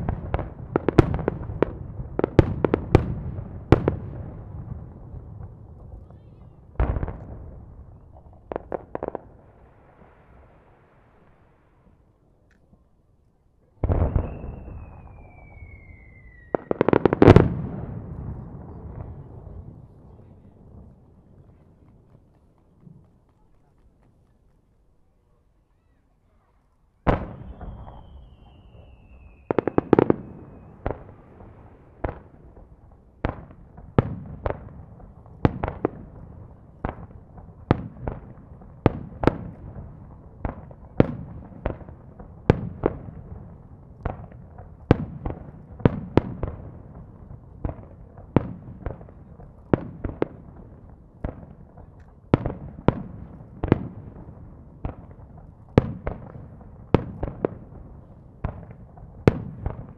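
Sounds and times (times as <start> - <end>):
firework whistle sliding down: 14.1 - 16.8, 27.4 - 29.9.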